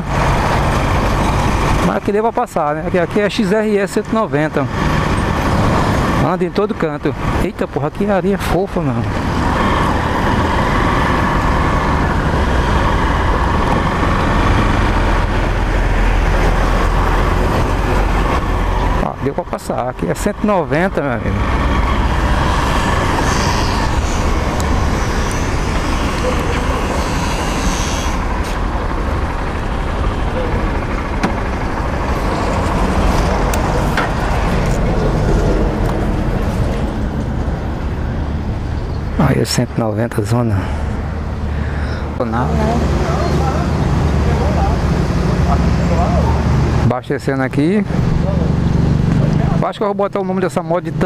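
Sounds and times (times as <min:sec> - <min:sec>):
motorcycle engine running: 0:21.6 - 0:36.8.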